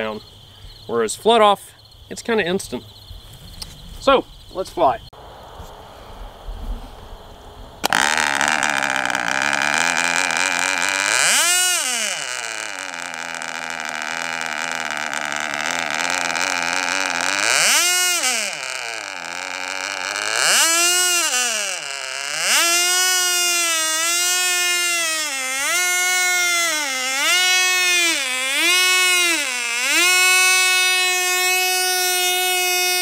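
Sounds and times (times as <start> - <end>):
model engine whining at high revs: 7.8 - 33.0.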